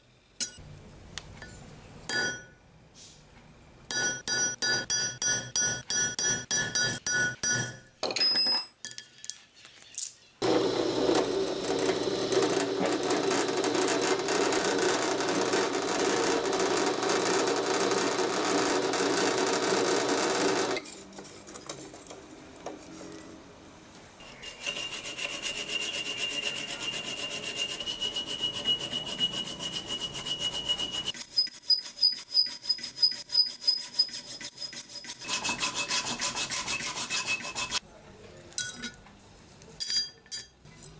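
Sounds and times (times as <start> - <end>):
high metallic ring: 1.4 - 2.6, 3.9 - 9.0
drill grinding through steel: 10.4 - 20.8
file rasping over steel: 24.2 - 37.8.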